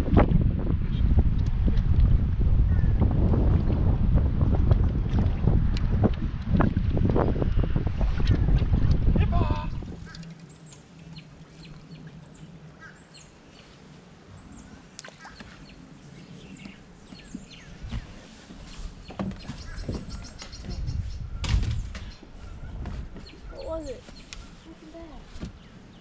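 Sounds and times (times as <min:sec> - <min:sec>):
small birds chirping: 0:09.7 - 0:26.0.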